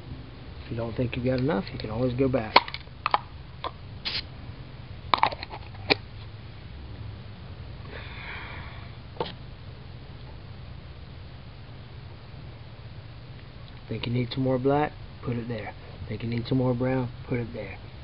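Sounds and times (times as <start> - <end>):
brief hiss: 4.0 - 4.3.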